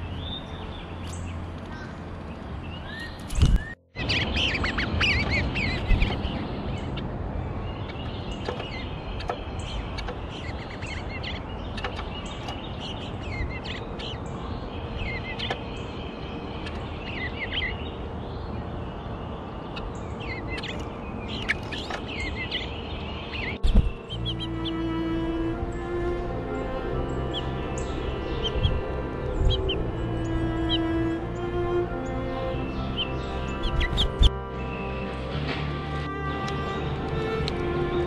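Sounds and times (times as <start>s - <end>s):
songbirds chirping: 0.0s - 38.0s
low thump: 23.6s - 24.0s.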